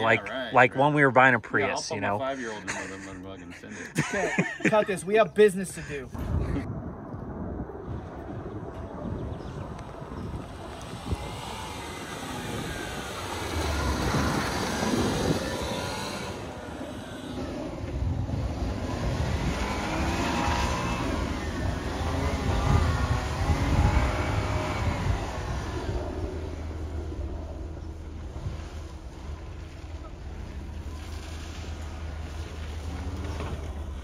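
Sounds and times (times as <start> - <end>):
truck engine revving: 9.8 - 34.0.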